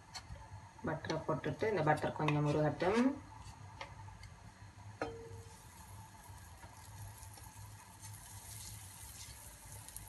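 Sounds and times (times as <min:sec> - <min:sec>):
low steady hum: 0:00.0 - 0:10.0
butter sizzling in a pan: 0:05.4 - 0:10.0.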